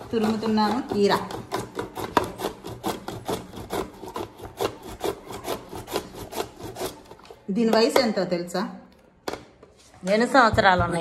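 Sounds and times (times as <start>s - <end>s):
cucumber rasping on grater: 0.0s - 7.3s.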